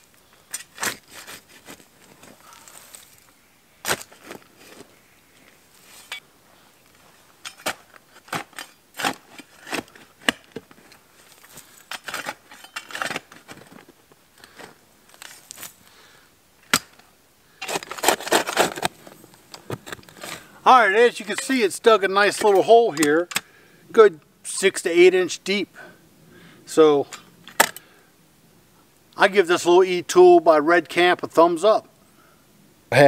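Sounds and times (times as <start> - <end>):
shovel chopping and scraping soil: 0.4 - 3.0, 3.8 - 4.8, 7.4 - 13.8, 17.6 - 20.5.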